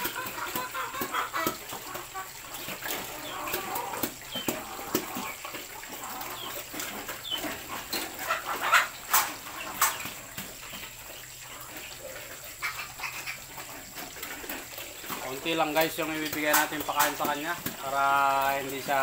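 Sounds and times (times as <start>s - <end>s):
pig calls: 0.0s - 10.2s, 11.4s - 15.2s
sharp clicks and knocks: 15.8s - 17.8s.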